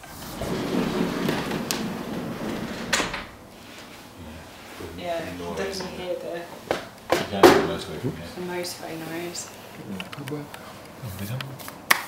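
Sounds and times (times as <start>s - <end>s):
sliding door rumbling on track: 0.0s - 4.9s.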